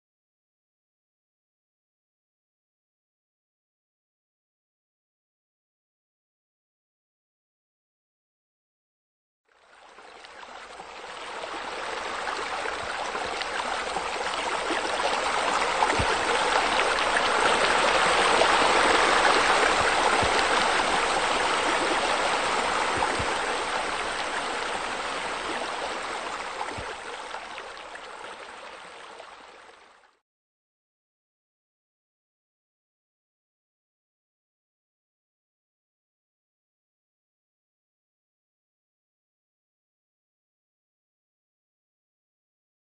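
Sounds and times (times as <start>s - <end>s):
water falling and splashing: 12.3s - 28.1s.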